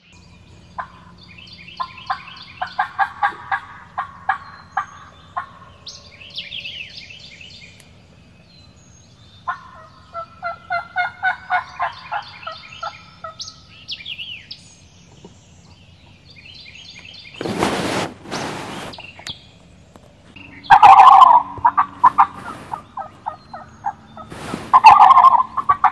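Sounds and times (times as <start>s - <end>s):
songbirds singing: 0.0s - 25.9s
turkey yelping: 0.8s - 1.1s, 1.8s - 5.9s, 9.5s - 13.6s, 20.5s - 25.9s
loud rustle: 17.3s - 19.1s, 22.1s - 22.9s, 24.3s - 25.3s.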